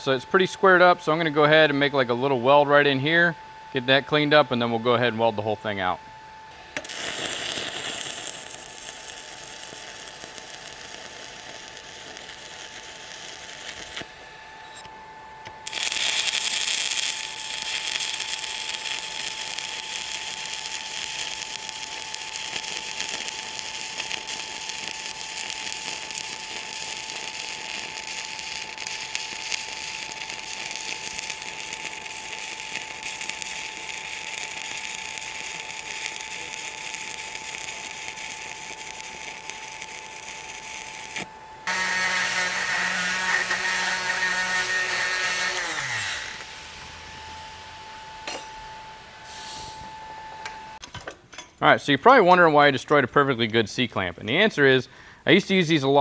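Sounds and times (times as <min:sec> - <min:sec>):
welding arc crackling and hissing: 0:06.8 - 0:14.2, 0:15.6 - 0:47.4.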